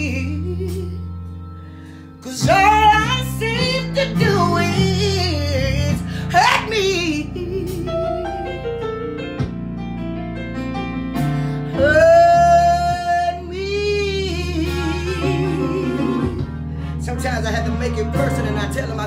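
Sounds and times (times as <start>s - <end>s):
woman singing: 0.0s - 1.0s, 2.2s - 8.8s, 11.7s - 19.0s
instrumental backing music: 0.0s - 19.0s.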